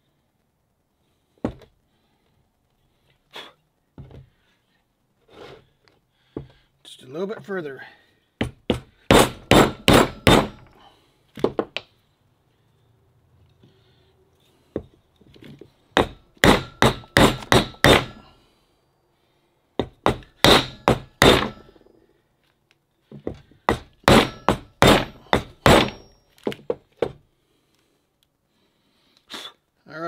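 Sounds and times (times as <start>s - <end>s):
hammer striking wooden block: 8.4s - 10.7s, 16.0s - 18.2s, 19.8s - 21.9s, 23.7s - 27.2s.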